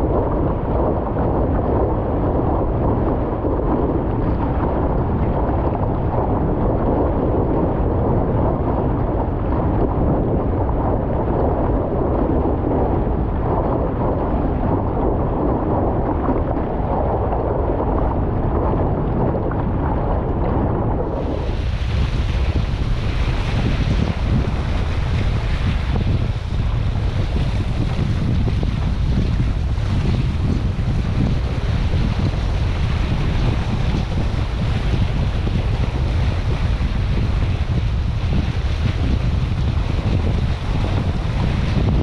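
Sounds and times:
wind buffeting microphone: 0.0 - 42.0
water hissing and splashing: 21.1 - 36.5.

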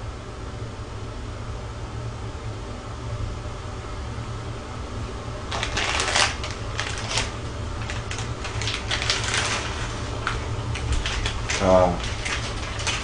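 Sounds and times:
plastic packets crinkling and tearing: 5.5 - 13.0.

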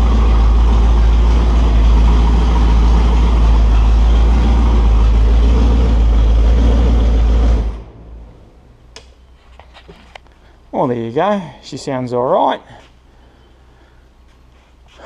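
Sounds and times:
engine running on test stand: 0.0 - 8.0.

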